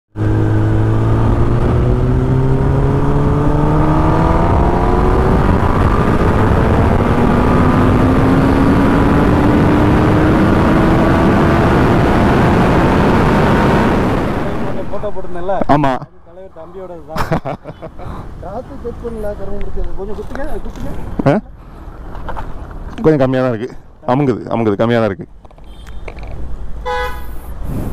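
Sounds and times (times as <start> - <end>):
road noise: 0.1 - 27.9
wind rush: 0.5 - 15.2, 27.6 - 27.9.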